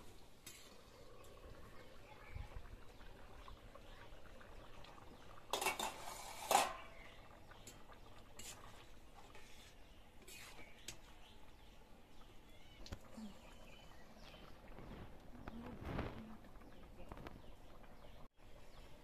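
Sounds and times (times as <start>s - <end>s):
lid clanking on pot: 5.5s - 6.9s
metal pan lid clattering: 5.5s - 7.0s.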